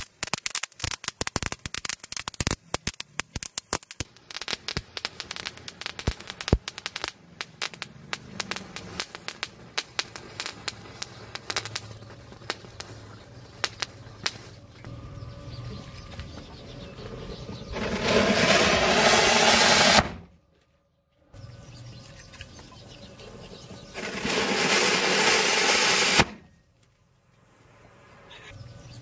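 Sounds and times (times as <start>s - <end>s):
crackers hissing sparks: 0.0s - 14.8s, 17.7s - 20.2s, 23.8s - 26.4s
firecrackers cracking and popping: 0.0s - 14.8s, 17.6s - 20.2s, 23.9s - 26.4s.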